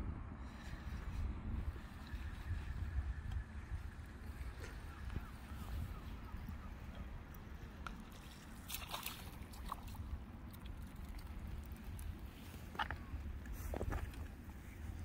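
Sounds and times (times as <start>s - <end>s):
wind rumbling on microphone: 0.0s - 15.0s
water sloshing at shoreline: 0.6s - 15.0s
water splashes: 4.0s - 14.4s.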